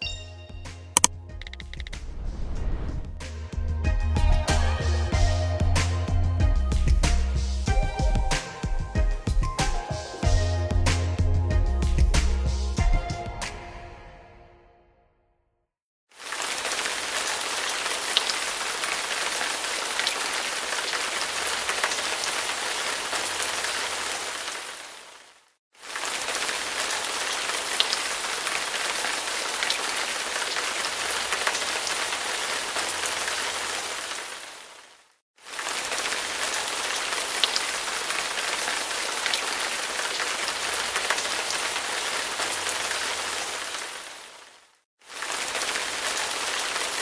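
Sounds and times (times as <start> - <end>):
rain drop ticks: 1.0 - 2.0
rain hiss: 16.1 - 47.0.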